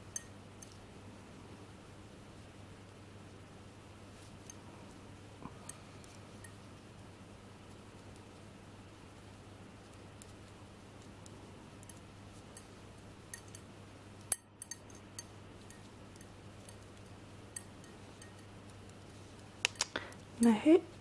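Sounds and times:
faint steady hum: 0:00.0 - 0:21.0
knitting needles clicking: 0:19.6 - 0:20.3.

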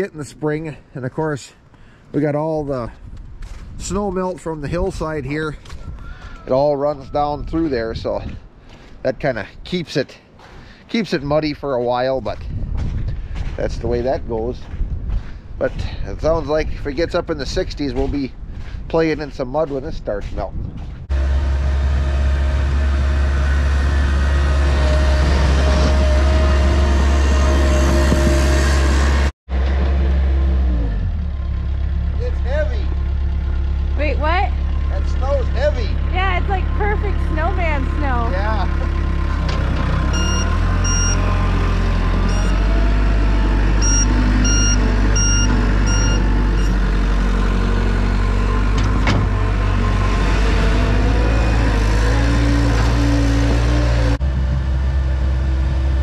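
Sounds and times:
diesel engine under load: 0:20.8 - 0:56.0
backup alarm beeping: 0:40.1 - 0:41.3, 0:42.3 - 0:42.6, 0:43.8 - 0:46.8.

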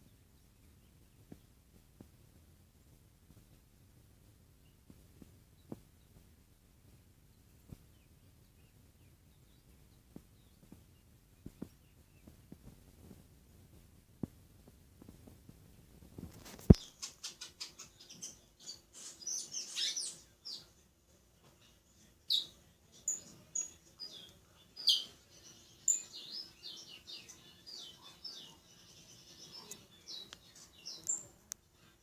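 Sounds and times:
songbird chirping and whistling: 0:16.7 - 0:20.7, 0:22.3 - 0:31.4.

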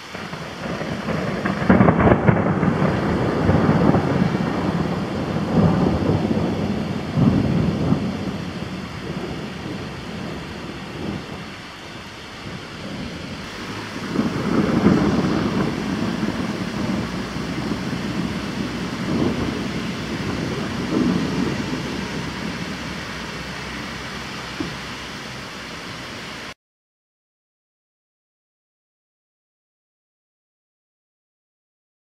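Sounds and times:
rolling thunder: 0:00.0 - 0:26.6
steady rain: 0:00.0 - 0:26.6.

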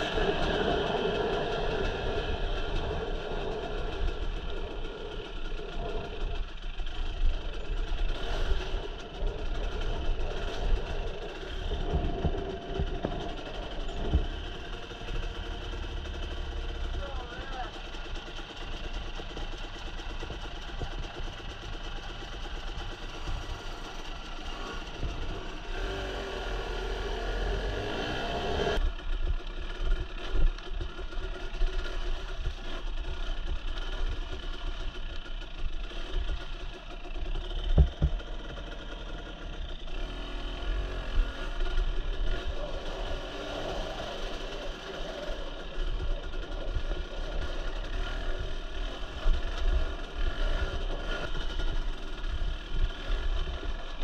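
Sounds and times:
dirt bike engine revving: 0:00.0 - 0:29.0, 0:29.6 - 0:54.0.

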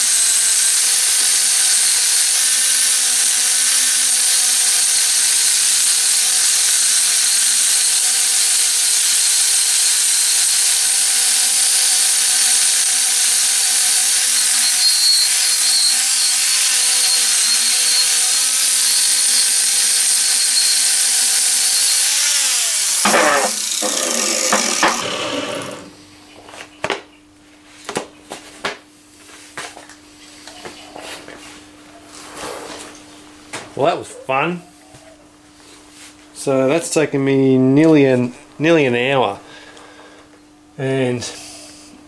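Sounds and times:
angle grinder wire wheel scouring: 0:13.9 - 0:26.0.

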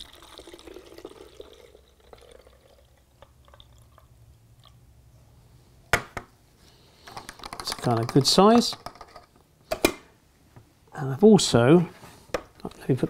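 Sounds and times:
liquid trickling into bottle: 0:00.0 - 0:04.2
liquid dripping: 0:00.0 - 0:04.8.

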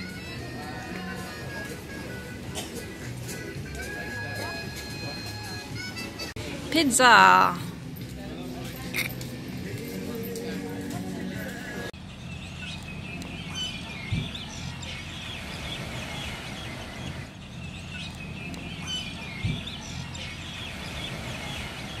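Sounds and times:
birds chirping: 0:11.2 - 0:22.0.

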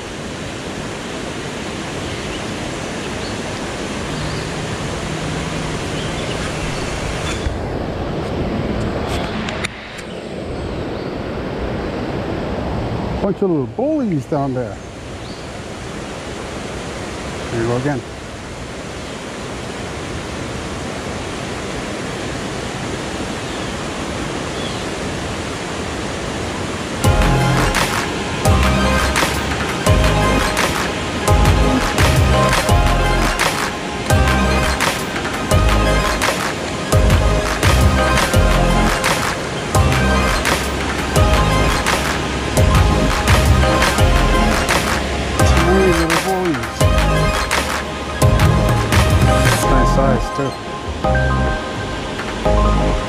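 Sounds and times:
river water flowing: 0:00.0 - 0:53.0.

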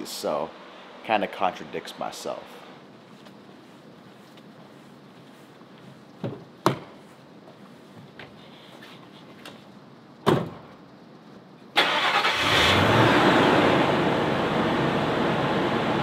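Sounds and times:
car door thumping shut: 0:10.2 - 0:10.6
engine starting and idling: 0:11.8 - 0:15.0.

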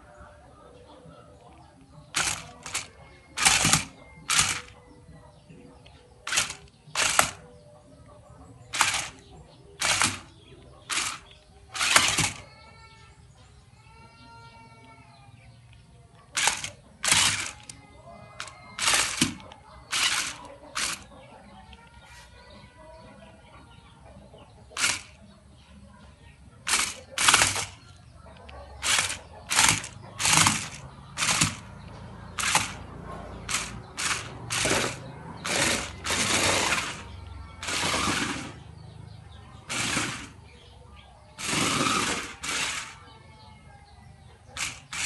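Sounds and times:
toy car electric motors whirring: 0:01.8 - 0:05.1, 0:05.8 - 0:07.6, 0:08.7 - 0:15.0, 0:15.7 - 0:21.9, 0:24.7 - 0:25.3, 0:26.6 - 0:38.8, 0:39.6 - 0:40.7, 0:41.3 - 0:43.6, 0:44.4 - 0:45.0.

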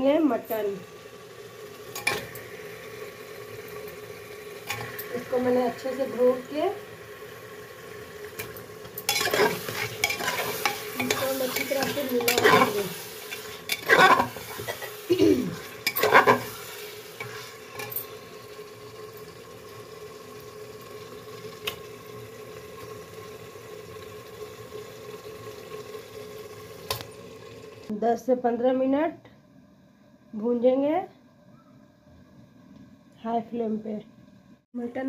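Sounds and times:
meat sizzling in pot: 0:00.0 - 0:28.0.

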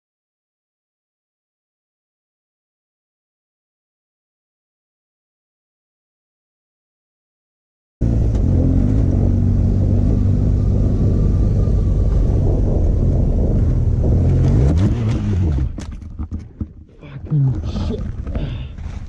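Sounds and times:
motorcycle engine running: 0:08.0 - 0:15.8.

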